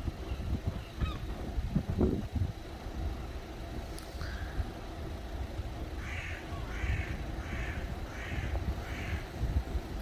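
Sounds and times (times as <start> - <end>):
low traffic rumble: 0.0 - 10.0
crow cawing: 6.0 - 9.3.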